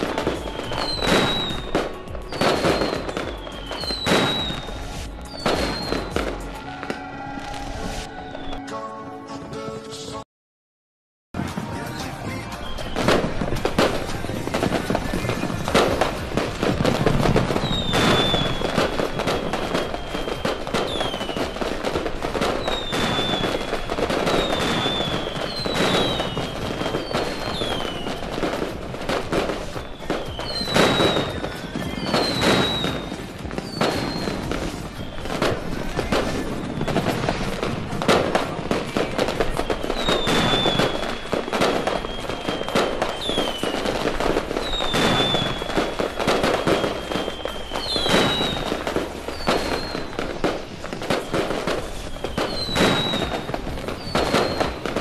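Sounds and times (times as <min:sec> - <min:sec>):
fireworks bangs and crackling: 0:00.0 - 0:08.6, 0:11.4 - 0:55.0
falling high whistles: 0:00.0 - 0:08.8, 0:17.6 - 0:28.6, 0:29.4 - 0:35.6, 0:39.4 - 0:54.8.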